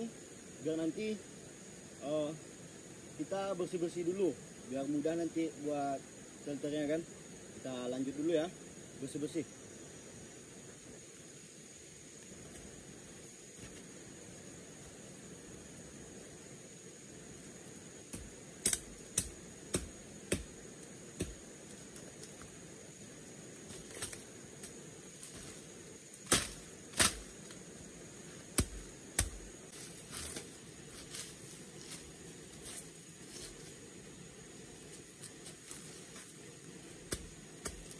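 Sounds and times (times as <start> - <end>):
steady hiss: 0.0 - 37.9
rustling of cut leaves: 17.6 - 33.9, 34.6 - 37.9
machete strikes chopping: 18.2 - 20.6, 21.2 - 21.4, 26.2 - 27.3, 28.6 - 29.5.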